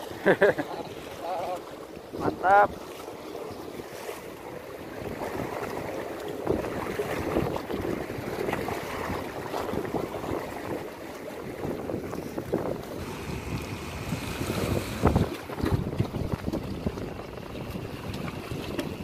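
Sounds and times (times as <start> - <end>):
sea waves against breakwater: 0.0 - 19.0
wind buffeting microphone: 4.8 - 19.0.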